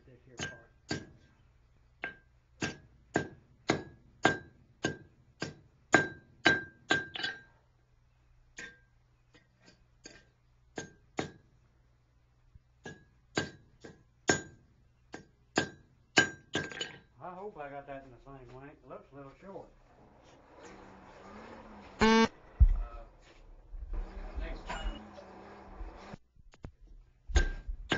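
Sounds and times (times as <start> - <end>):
hammer striking steel on anvil: 0.4 - 1.2, 2.0 - 7.5, 12.8 - 16.8, 27.4 - 27.7.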